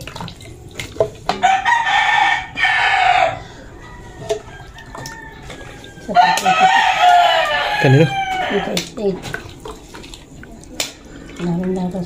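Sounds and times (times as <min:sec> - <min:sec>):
ladle knocking metal pot: 0:00.8 - 0:01.6
rooster crowing: 0:01.4 - 0:08.8.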